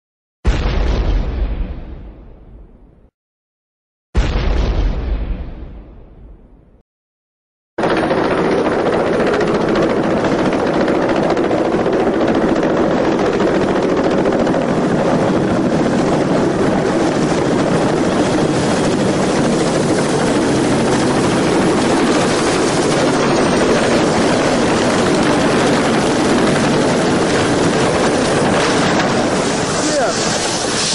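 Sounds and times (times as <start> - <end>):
helicopter rotor and turbine: 7.8 - 30.9.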